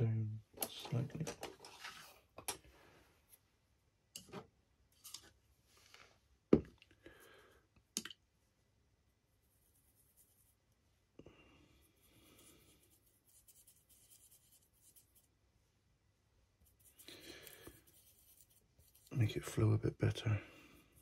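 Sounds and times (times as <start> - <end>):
paintbrush rubbing on palette: 9.3 - 10.6, 11.8 - 15.4, 16.6 - 19.7, 20.5 - 21.0.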